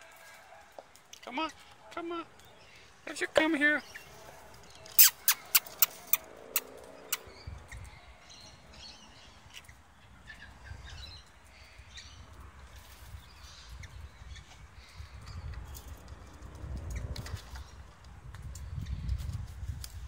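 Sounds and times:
bird chirps and calls: 2.4s - 12.3s
sharp clicks: 4.9s - 7.2s.

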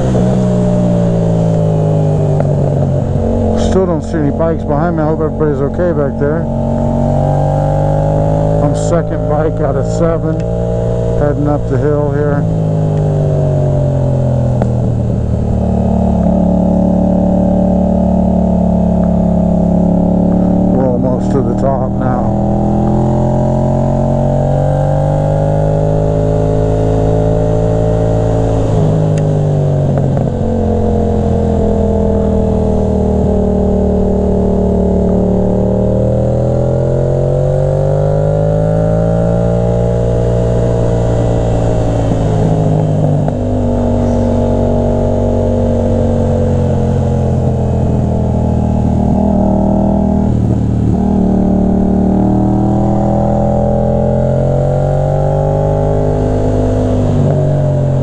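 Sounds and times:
motorcycle engine pulling uphill: 0.0s - 58.0s.

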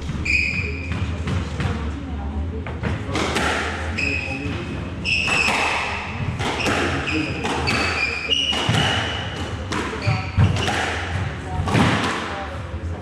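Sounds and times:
shoes squeaking on wooden floor: 5.0s - 10.7s
squash ball knocks: 5.2s - 12.4s.

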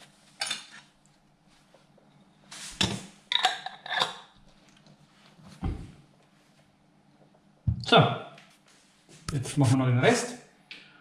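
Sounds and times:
glass jars clinking: 3.3s - 4.2s.

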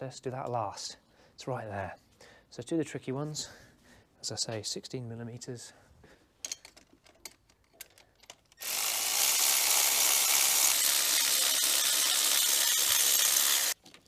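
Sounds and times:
handheld power tool running: 8.6s - 13.8s.

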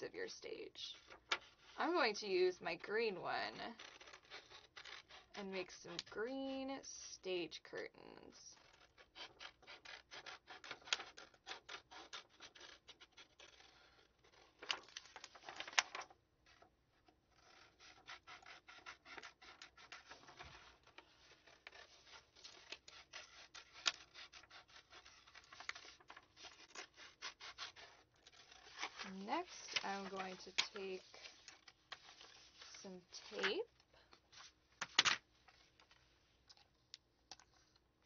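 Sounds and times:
scissors snipping paper: 8.6s - 16.0s, 17.4s - 33.7s
paper rustling: 12.5s - 37.8s.

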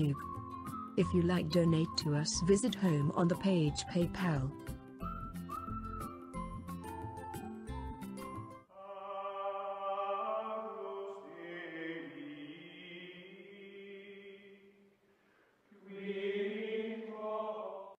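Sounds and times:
choir-like held chords: 8.7s - 14.7s, 15.8s - 17.9s.

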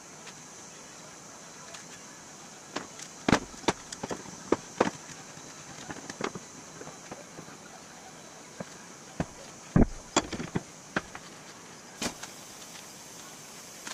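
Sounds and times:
sharp knocks and clatter: 2.8s - 5.2s, 9.2s - 11.3s.

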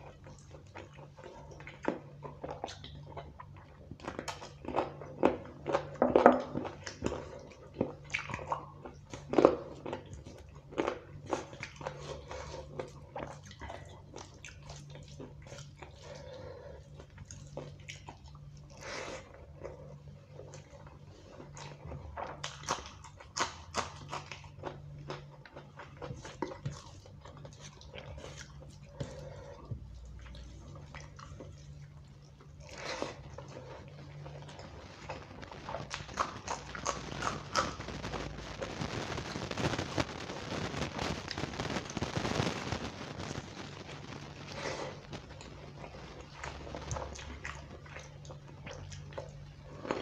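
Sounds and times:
wet chewing and lip smacks: 0.1s - 16.0s, 20.4s - 38.0s, 45.1s - 50.0s.

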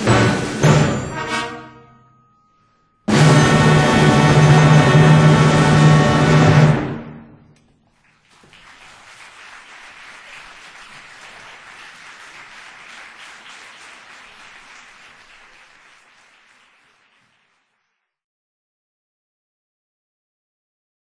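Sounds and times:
audience applauding: 7.7s - 18.2s.

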